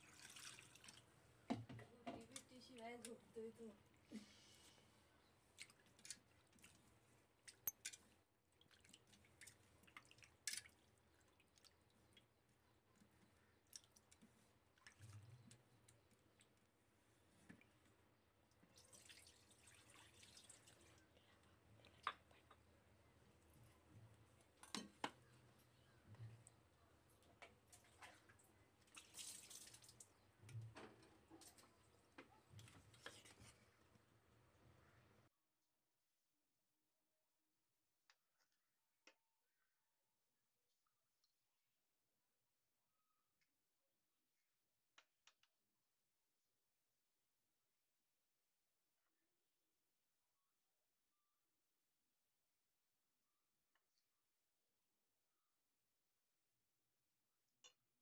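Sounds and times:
hands washing fish in water: 0:00.0 - 0:01.2, 0:05.5 - 0:16.8, 0:18.6 - 0:21.0, 0:27.6 - 0:30.2.

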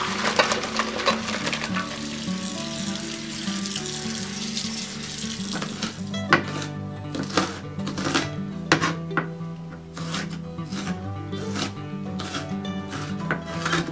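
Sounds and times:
tap water running over potatoes: 0:00.0 - 0:06.5
background music: 0:00.0 - 0:13.9
knife chopping on plastic board: 0:06.3 - 0:09.3, 0:11.5 - 0:13.9.

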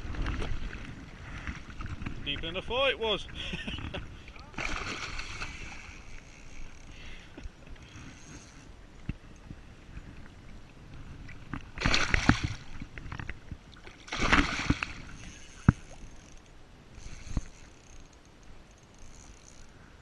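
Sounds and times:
fish splashing in water: 0:04.6 - 0:05.9, 0:11.8 - 0:12.8, 0:13.9 - 0:15.1.

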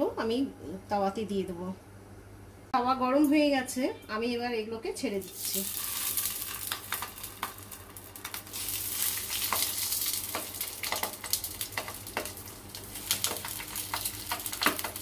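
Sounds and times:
oil sizzling in a frying pan: 0:05.2 - 0:15.0.

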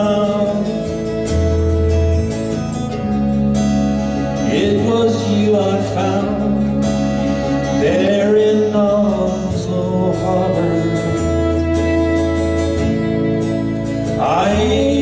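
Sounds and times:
person singing: 0:00.0 - 0:01.4, 0:04.3 - 0:13.1, 0:13.9 - 0:15.0
bowed violin: 0:00.0 - 0:15.0
low bass notes: 0:00.0 - 0:15.0.

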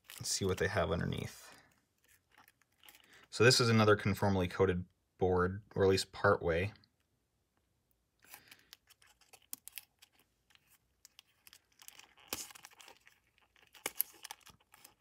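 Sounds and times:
tape peeling crackling: 0:08.3 - 0:15.0.

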